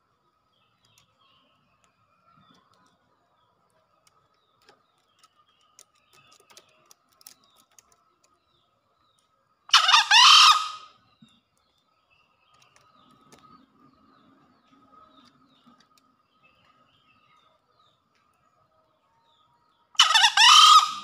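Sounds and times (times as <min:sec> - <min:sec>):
junglefowl crowing: 0:09.7 - 0:10.9, 0:20.0 - 0:21.0.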